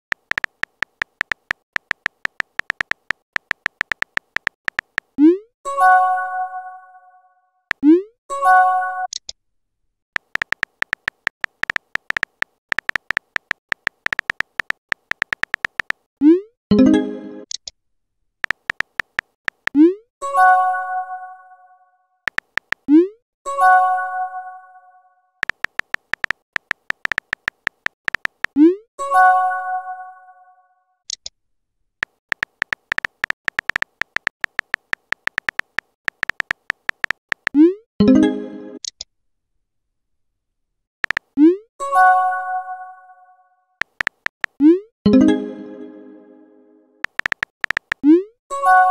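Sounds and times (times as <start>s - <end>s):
smartphone keyboard tap clicks: 0.1s - 5.1s, 10.2s - 16.0s, 18.4s - 19.8s, 22.3s - 22.8s, 25.4s - 28.6s, 32.0s - 37.6s, 41.0s - 41.3s, 43.8s - 44.6s, 47.0s - 48.0s.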